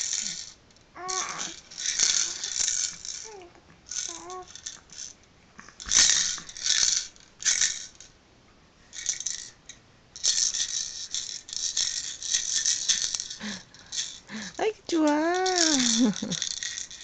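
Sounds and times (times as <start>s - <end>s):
toy maraca rattling: 0.0s - 5.2s, 5.8s - 8.1s, 8.9s - 17.0s.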